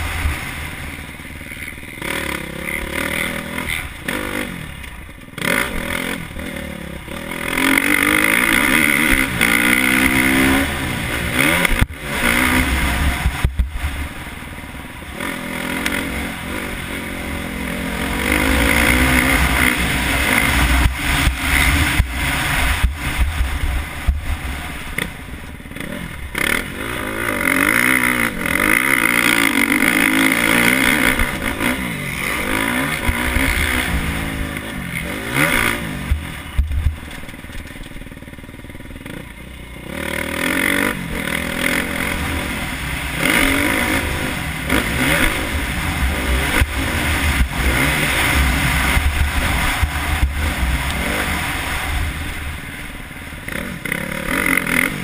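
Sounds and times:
motorcycle engine revving: 0:00.0 - 0:55.0
knocks and clatter over bumps: 0:28.5 - 0:38.4.

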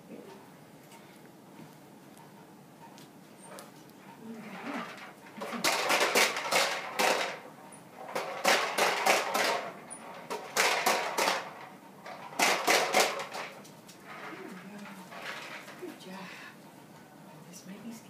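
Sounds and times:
toy popper balls clacking: 0:05.4 - 0:07.4, 0:08.1 - 0:13.5.

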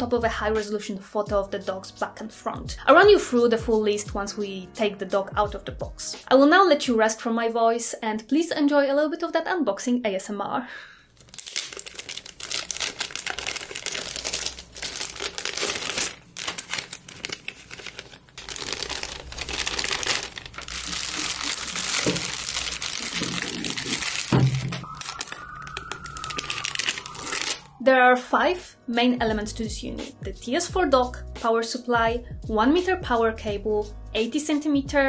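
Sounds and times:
plastic bags crinkling: 0:11.2 - 0:27.8.

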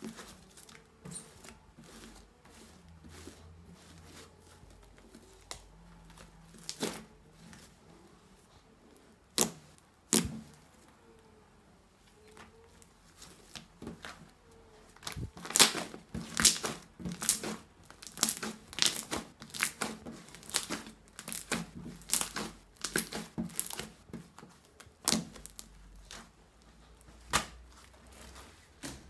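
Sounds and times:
slime crackling pops: 0:15.0 - 0:23.8.

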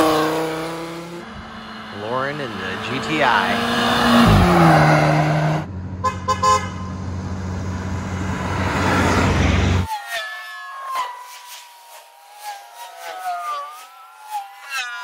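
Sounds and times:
car passing by: 0:00.0 - 0:05.7, 0:07.2 - 0:09.9
car engine idling: 0:05.3 - 0:09.8
car horn toots: 0:06.0 - 0:07.0.

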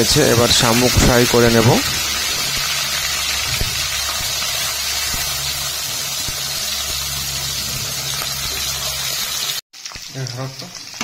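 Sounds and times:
meat sizzling in hot oil: 0:00.0 - 0:11.0
steady low hum: 0:00.8 - 0:09.5.

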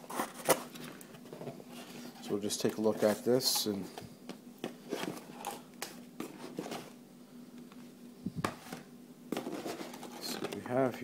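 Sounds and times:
cardboard scraping and rustling: 0:00.0 - 0:03.4, 0:06.2 - 0:07.0, 0:08.4 - 0:10.6.

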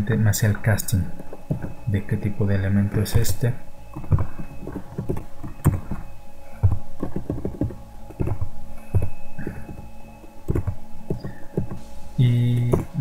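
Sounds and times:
computer keyboard typing: 0:02.9 - 0:06.0, 0:10.5 - 0:11.8.

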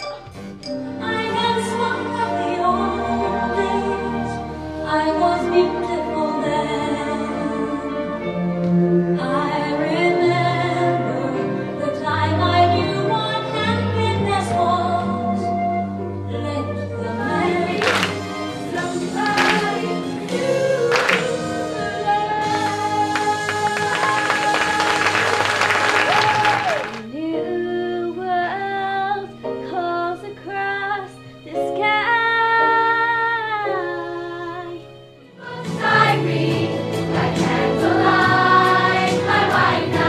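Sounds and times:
group of voices singing: 0:17.0 - 0:26.0, 0:35.4 - 0:40.0.

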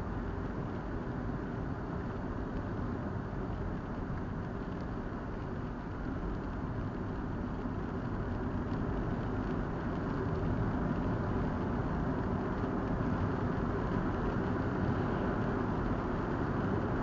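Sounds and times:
car road noise from inside: 0:00.0 - 0:17.0.

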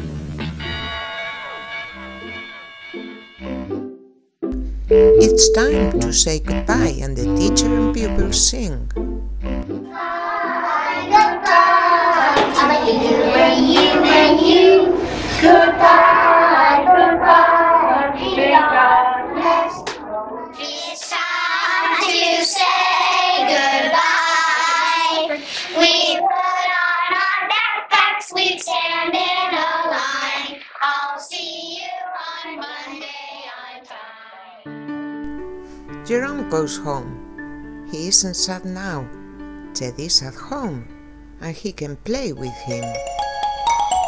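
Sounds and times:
young children singing: 0:09.9 - 0:34.6.

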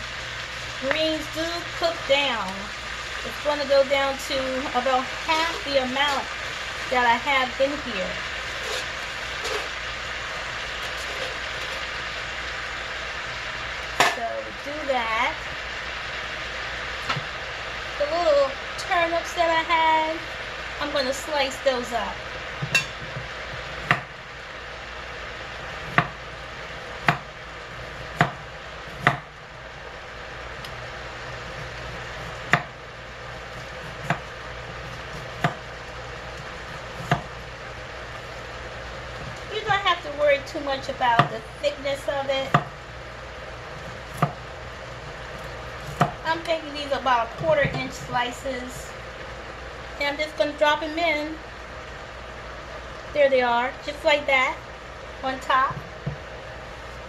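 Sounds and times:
steady background hiss: 0:00.0 - 0:57.0
vegetables sizzling in a pan: 0:00.0 - 0:57.0
knife chopping on cutting board: 0:37.0 - 0:37.3.

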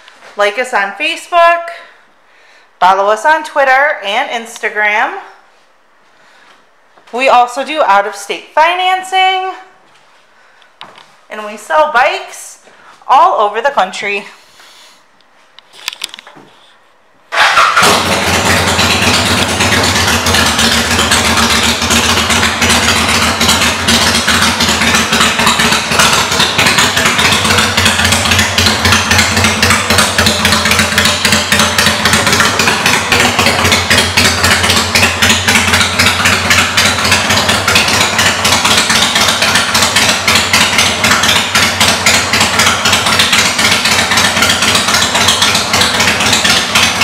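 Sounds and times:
motorcycle engine idling: 0:17.3 - 0:47.0.

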